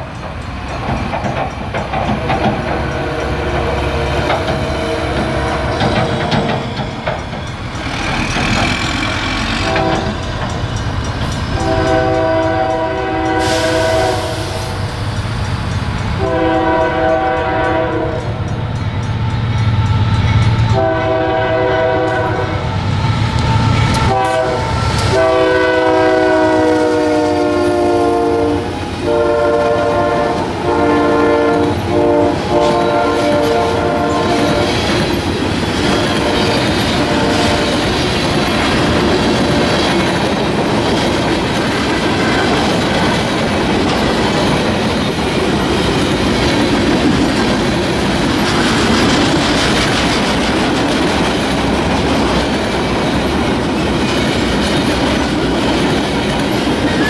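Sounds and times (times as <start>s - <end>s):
diesel locomotive rumble: 0.0s - 57.0s
railcars clattering on track: 0.0s - 57.0s
train air horn blasts: 2.2s - 5.9s, 9.0s - 10.3s, 11.5s - 14.9s, 16.2s - 18.4s, 20.7s - 22.8s, 23.4s - 34.9s, 35.8s - 38.0s.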